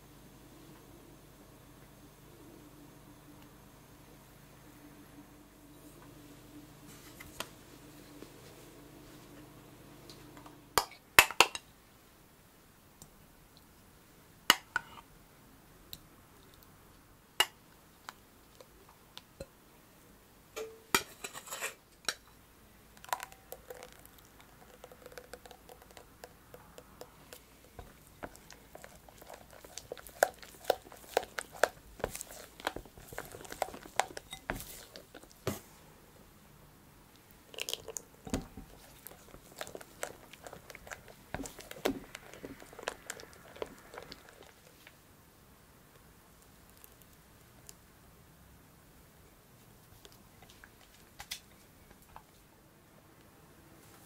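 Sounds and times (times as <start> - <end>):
spatula squelching and scraping glass: 27.8 - 35.4
glass bowl and utensils clinking: 29.8 - 35.0.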